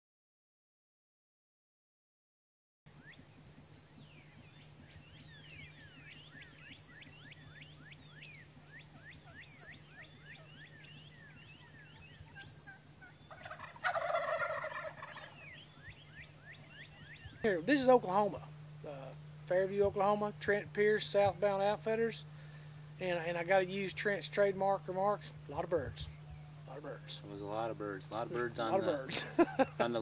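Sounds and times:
turkey gobbling: 3.1s - 17.9s
downward-sliding bird calls: 4.3s - 17.5s.

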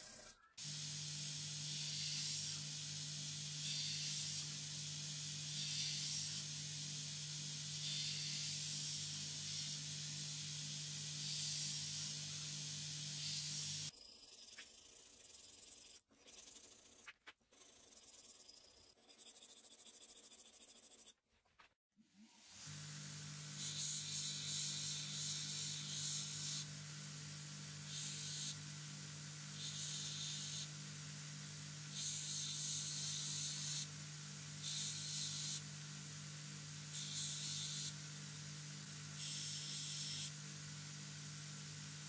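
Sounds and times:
belt grinder motor hum: 22.6s - 42.0s.

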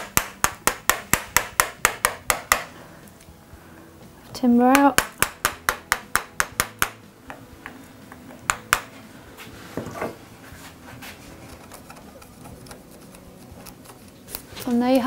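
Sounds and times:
mallet tapping chisel into wood: 0.0s - 2.7s, 4.7s - 8.9s
faint chisel working by hand: 10.8s - 14.8s.

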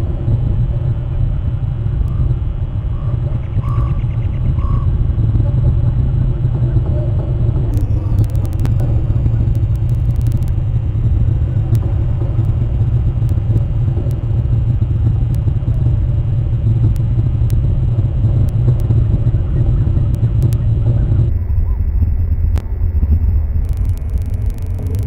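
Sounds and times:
low rumble: 0.0s - 25.0s
faint sharp clicks: 7.7s - 16.0s, 16.8s - 25.0s.

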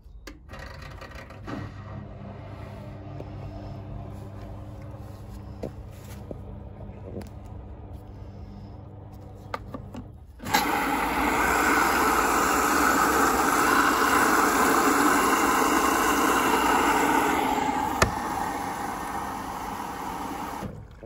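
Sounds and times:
water rushing into washing machine: 10.4s - 21.0s.

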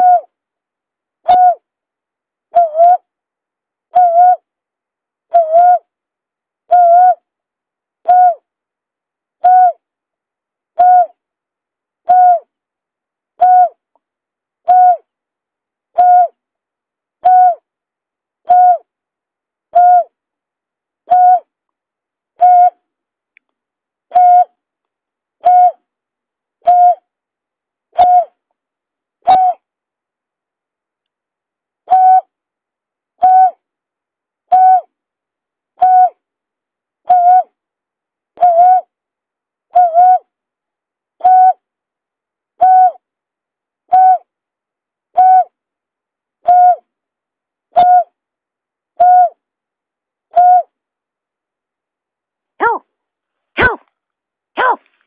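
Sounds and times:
bird hooting: 0.0s - 0.3s, 1.3s - 1.6s, 2.6s - 3.0s, 3.9s - 4.5s, 5.3s - 5.9s, 6.7s - 7.2s, 8.0s - 8.4s, 9.4s - 9.8s, 10.8s - 11.2s, 12.1s - 12.5s, 13.4s - 13.8s, 14.7s - 15.1s, 16.0s - 16.4s, 17.2s - 17.7s, 18.5s - 18.9s, 19.7s - 20.1s, 21.1s - 21.5s, 22.4s - 22.8s, 24.1s - 24.6s, 25.4s - 25.8s, 26.6s - 27.0s, 28.0s - 28.4s, 29.2s - 29.6s, 31.9s - 32.3s, 33.2s - 33.6s, 34.5s - 34.9s, 35.8s - 36.2s, 37.1s - 37.5s, 38.4s - 38.9s, 39.8s - 40.3s, 41.2s - 41.6s, 42.6s - 43.0s, 43.9s - 44.3s, 45.2s - 45.6s, 46.5s - 46.8s, 47.8s - 48.2s, 49.0s - 49.4s, 50.3s - 50.8s, 52.6s - 52.8s, 54.6s - 54.8s.

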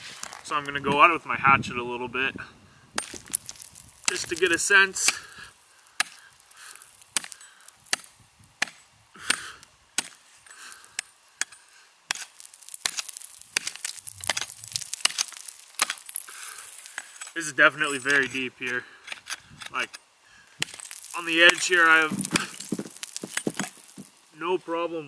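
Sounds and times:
hatchet chopping ice: 3.0s - 17.3s, 20.6s - 24.2s.

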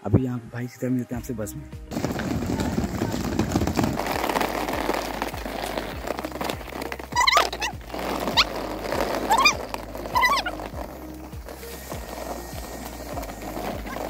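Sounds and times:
background music with steady beat: 0.0s - 2.9s, 4.0s - 14.0s
sliding whistle-like melody: 7.1s - 14.0s.

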